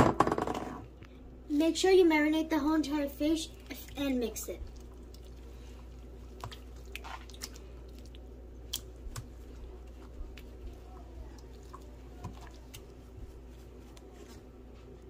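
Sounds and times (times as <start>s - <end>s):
steady low hum: 0.0s - 15.0s
wet squishing of fish in paste: 3.4s - 14.1s.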